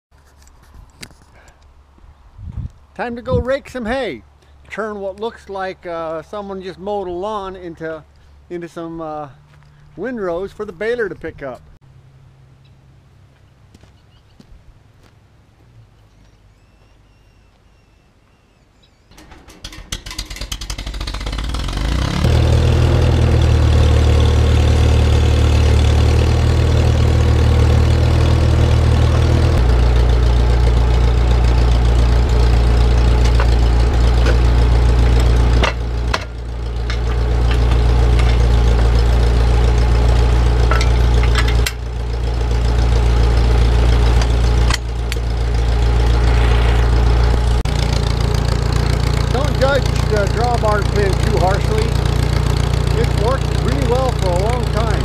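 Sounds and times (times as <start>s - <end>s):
tractor engine cranking: 19.1s - 46.3s, 47.0s - 55.0s
tractor engine running: 19.1s - 55.0s.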